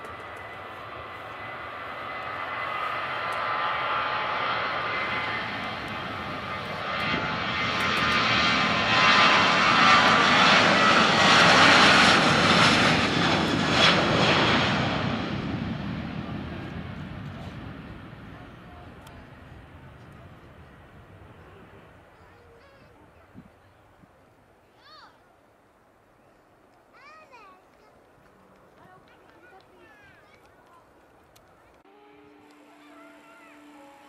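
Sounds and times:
jet engines roaring: 0.0s - 22.2s.

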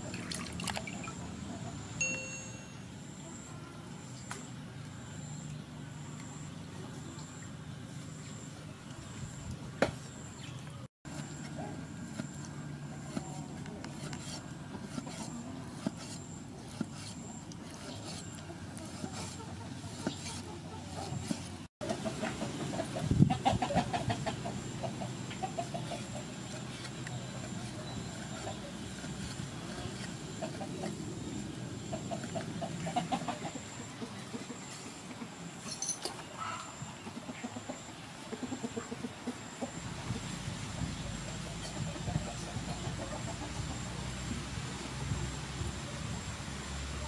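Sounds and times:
chickens clucking: 17.0s - 35.5s, 36.2s - 43.9s.

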